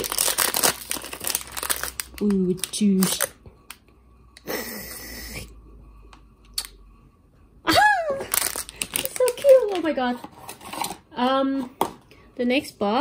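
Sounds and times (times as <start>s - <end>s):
foil bag crinkling: 0.0s - 3.4s, 8.1s - 10.9s.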